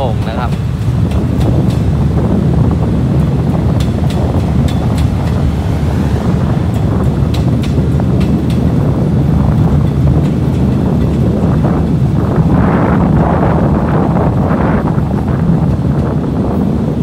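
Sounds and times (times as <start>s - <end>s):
train coaches rolling on rails: 0.0s - 17.0s
wind buffeting microphone: 0.0s - 17.0s.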